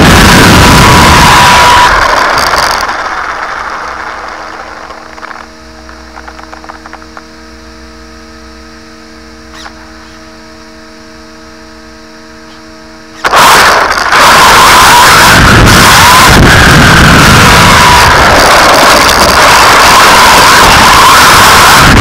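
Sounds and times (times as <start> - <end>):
loud rushing noise: 0.0 - 5.2, 13.2 - 22.0
electrical hum: 0.0 - 22.0.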